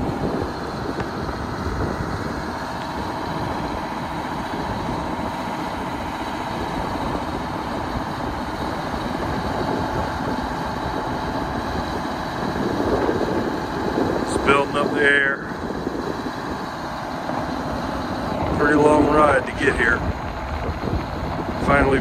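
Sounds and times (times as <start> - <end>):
diesel truck engine idling: 0.0 - 22.0
wind buffeting microphone: 0.0 - 22.0.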